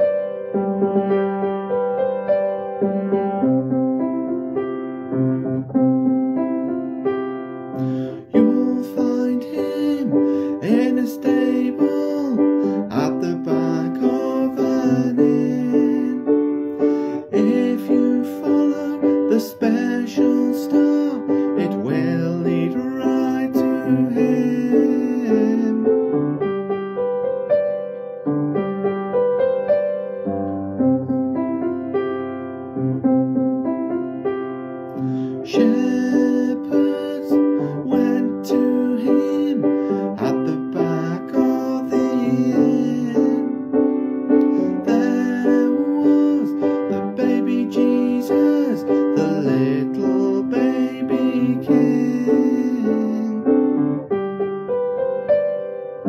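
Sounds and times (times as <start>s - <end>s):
piano-like keyboard music: 0.0s - 56.0s.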